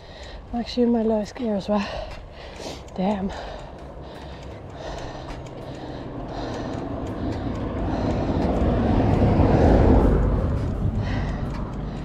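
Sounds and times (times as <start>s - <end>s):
car passing by: 4.2s - 12.0s.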